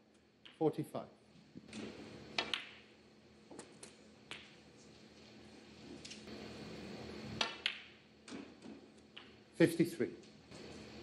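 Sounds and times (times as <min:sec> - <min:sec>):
snooker balls clicking: 0:00.4 - 0:00.7, 0:01.6 - 0:02.9, 0:03.5 - 0:04.6, 0:07.4 - 0:09.5.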